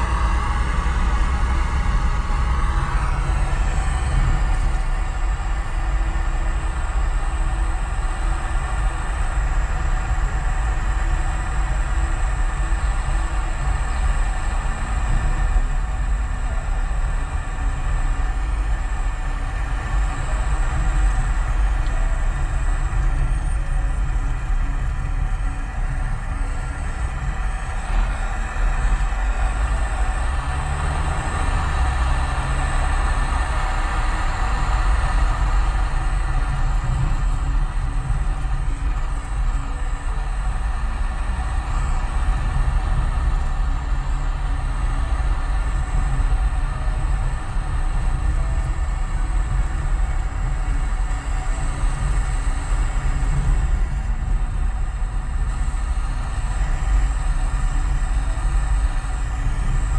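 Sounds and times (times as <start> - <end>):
car interior road rumble: 0.0 - 59.9.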